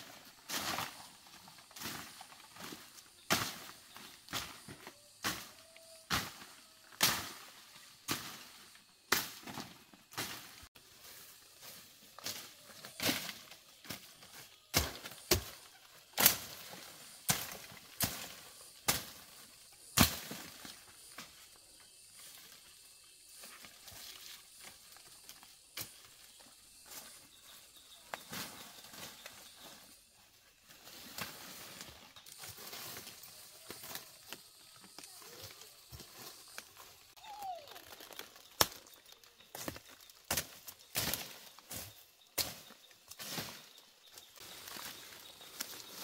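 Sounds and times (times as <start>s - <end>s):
scraping and rustling in soil: 0.0s - 46.0s
hand tool chopping into soil: 14.7s - 15.6s, 19.8s - 20.6s, 39.5s - 43.5s.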